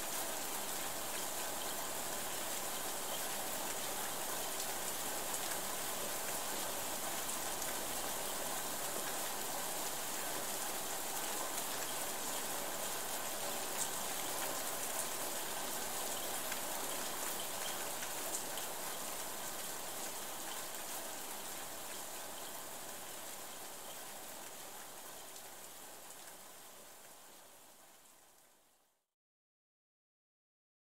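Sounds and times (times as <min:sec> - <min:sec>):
steady rain: 0:00.0 - 0:28.9
rain drops ticking: 0:11.4 - 0:27.2.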